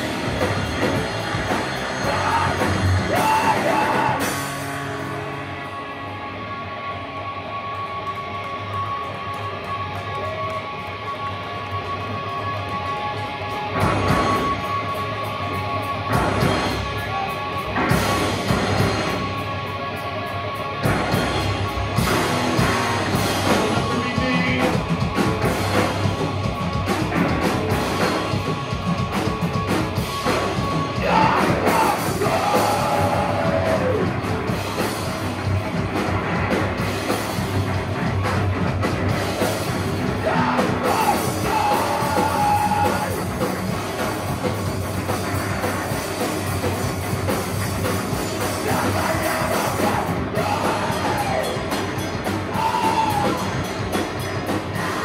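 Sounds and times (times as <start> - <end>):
live rock band playing: 0.0 - 55.0
vocals: 1.6 - 5.4, 22.6 - 25.4, 30.8 - 34.7, 39.8 - 43.6, 48.1 - 53.9, 54.6 - 55.0.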